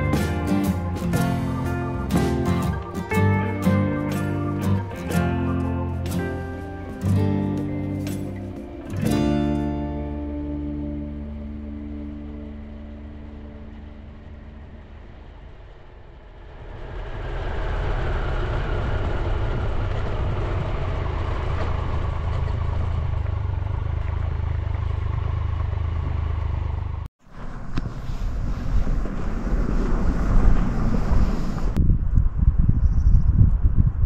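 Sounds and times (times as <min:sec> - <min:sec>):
motorcycle engine rumble: 0:00.0 - 0:32.4
wind gusting on microphone: 0:14.3 - 0:23.0, 0:27.3 - 0:34.0.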